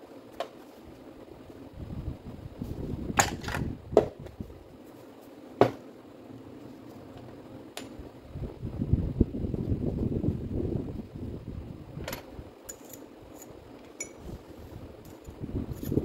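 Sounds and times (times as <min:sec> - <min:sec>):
rustling handling noise: 0:04.3 - 0:05.6.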